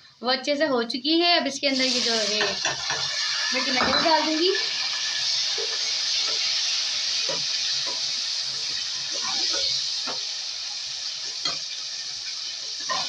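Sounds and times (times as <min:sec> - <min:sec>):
tomatoes sizzling in hot oil: 0:01.5 - 0:13.0
metal spatula scraping a wok: 0:01.9 - 0:10.2, 0:12.7 - 0:13.0.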